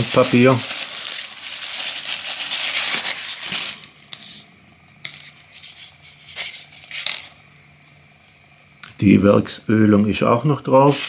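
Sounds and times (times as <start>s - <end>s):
tissue paper crinkling: 0.0s - 3.9s
paper rustling: 0.0s - 4.4s, 5.0s - 7.4s.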